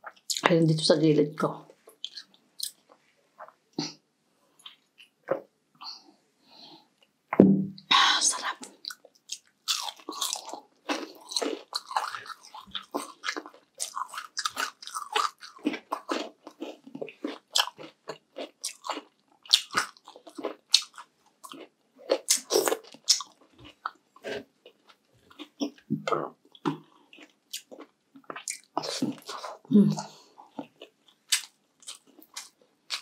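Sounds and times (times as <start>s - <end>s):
person chewing crunchy food: 1.9s - 4.0s, 8.6s - 33.0s.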